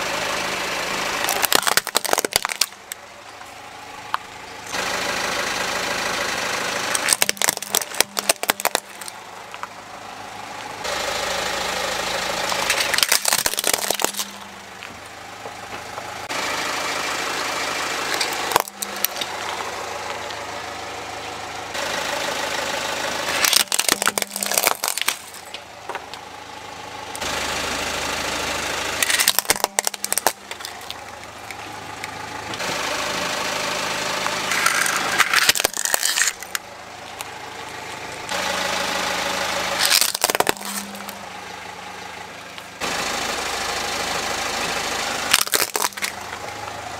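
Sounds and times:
car engine running slowly: 0:00.0 - 0:46.9
plastic toys cracking under tyre: 0:01.2 - 0:03.0, 0:06.9 - 0:09.7, 0:12.4 - 0:15.0, 0:18.1 - 0:19.6, 0:23.3 - 0:26.2, 0:29.0 - 0:32.2, 0:34.2 - 0:37.8, 0:39.8 - 0:41.2, 0:45.3 - 0:46.5.

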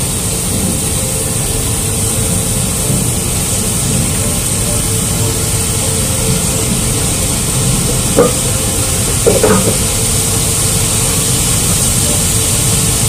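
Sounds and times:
machinery drone with hiss: 0:00.0 - 0:13.0
cookware clanking: 0:06.2 - 0:11.1.

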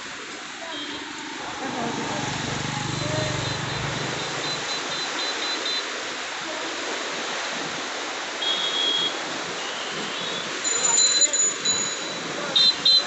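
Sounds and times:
water rushing: 0:00.0 - 0:13.0
short high beeps: 0:02.9 - 0:05.8, 0:10.6 - 0:13.0.

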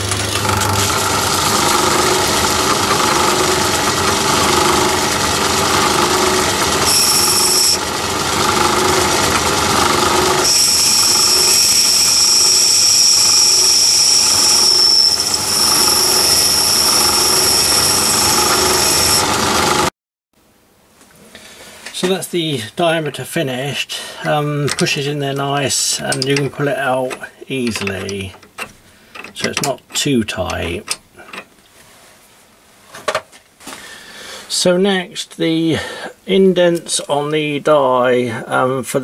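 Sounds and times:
metal lathe cutting: 0:00.0 - 0:19.9
steady high whine: 0:00.9 - 0:19.8.

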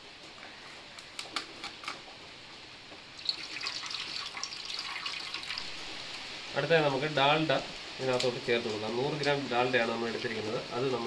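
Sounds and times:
milk pouring into a pot: 0:03.2 - 0:06.2.

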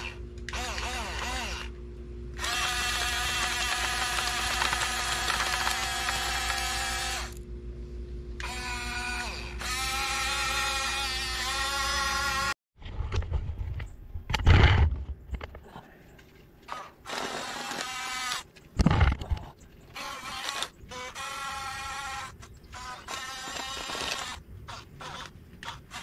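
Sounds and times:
electric motors whining: 0:00.0 - 0:07.5, 0:08.4 - 0:12.6, 0:16.7 - 0:18.6, 0:19.8 - 0:26.0.

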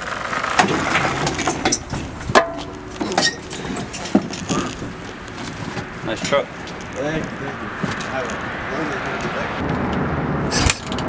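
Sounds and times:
dirt bike knocking and rattling: 0:00.0 - 0:07.1.

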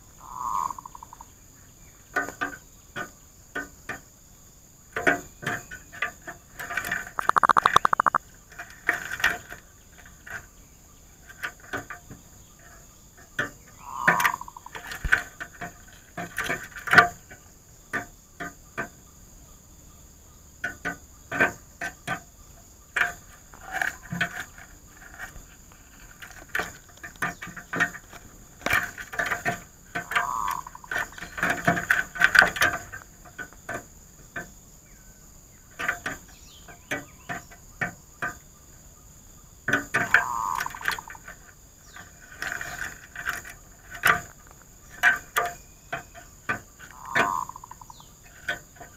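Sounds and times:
dove calling: 0:00.2 - 0:01.4, 0:07.0 - 0:08.3, 0:13.4 - 0:16.0, 0:22.0 - 0:33.5, 0:35.1 - 0:48.9
irregular clicks and taps: 0:06.7 - 0:08.2.

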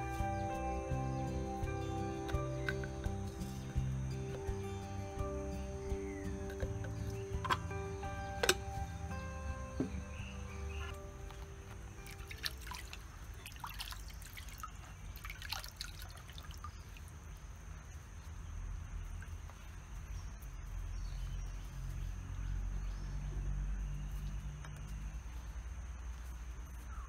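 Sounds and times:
low rumble: 0:00.0 - 0:13.4
water splashing in a bowl: 0:12.0 - 0:17.2.

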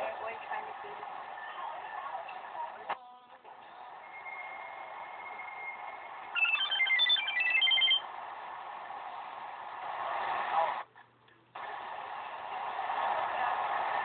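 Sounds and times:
mobile phone ringtone beeps: 0:06.4 - 0:08.0.

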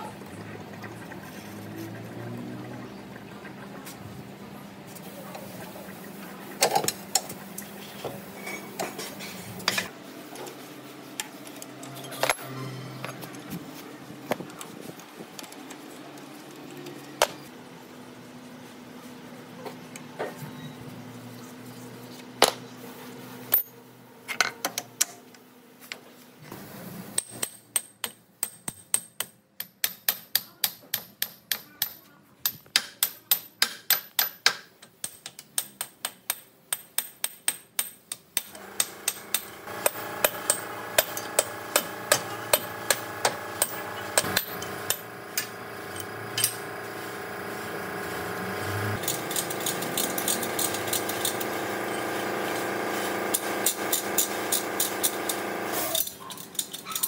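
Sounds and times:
steady machine hum: 0:38.5 - 0:55.8.

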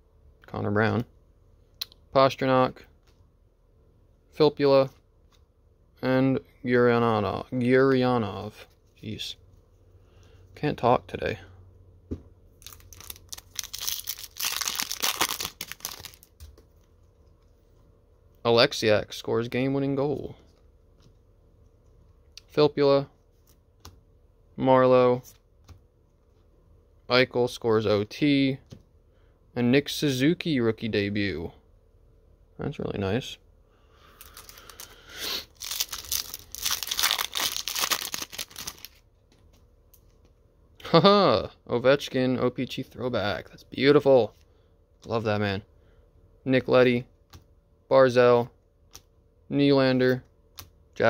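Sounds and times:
wrapper tearing and crinkling: 0:12.6 - 0:16.3, 0:34.2 - 0:39.0.

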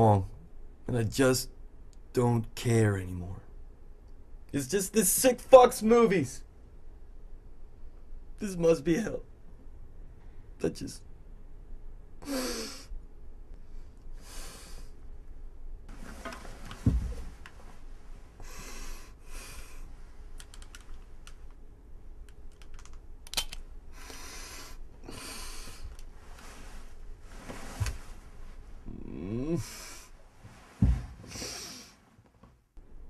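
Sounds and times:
man breathing hard: 0:13.6 - 0:15.0, 0:18.4 - 0:19.9, 0:23.9 - 0:26.0, 0:31.2 - 0:32.0
thump: 0:16.8 - 0:17.3, 0:30.8 - 0:31.3.

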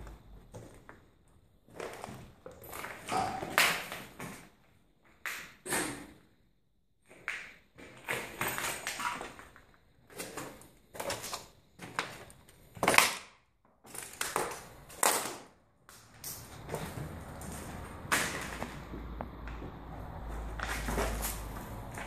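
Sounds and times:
footsteps crunching on rubble: 0:16.1 - 0:22.0.

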